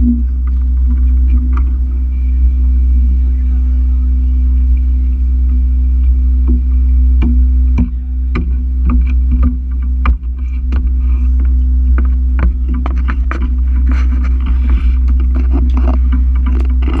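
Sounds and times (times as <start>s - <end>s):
sharp clicks and knocks: 0.0s - 2.0s, 6.4s - 17.0s
boat engine droning: 0.0s - 17.0s.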